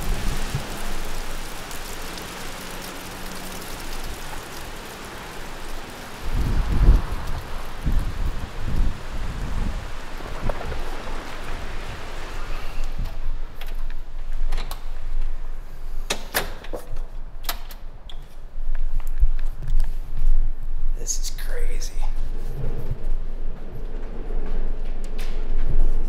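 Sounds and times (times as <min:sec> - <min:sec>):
wind buffeting the microphone: 0:06.1 - 0:14.5.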